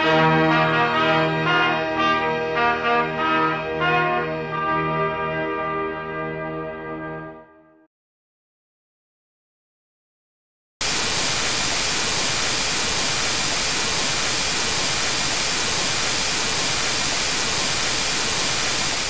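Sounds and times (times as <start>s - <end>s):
white noise static hiss: 10.8s - 19.0s.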